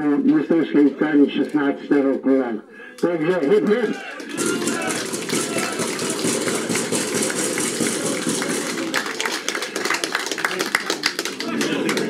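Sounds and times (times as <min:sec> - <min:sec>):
people clapping: 0:03.3 - 0:12.0
crowd cheering and shouting: 0:03.4 - 0:09.4.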